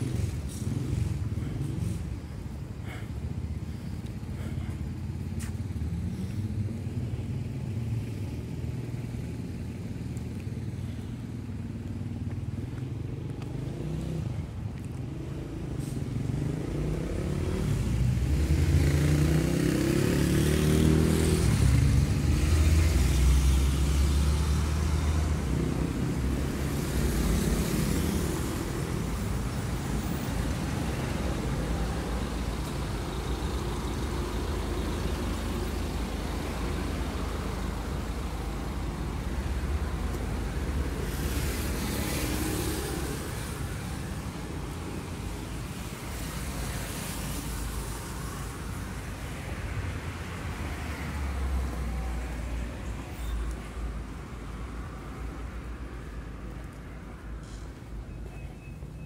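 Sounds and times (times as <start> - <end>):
low rumble of traffic: 0.0 - 59.0
vehicle passing close: 13.0 - 52.5
lighter hiss of passing vehicle: 15.6 - 49.5.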